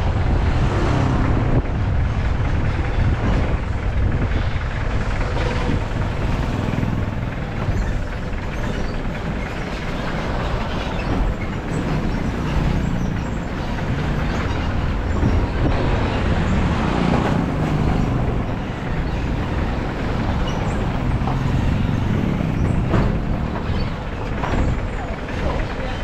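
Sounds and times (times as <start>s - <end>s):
car engine and tyre rumble: 0.0s - 26.0s.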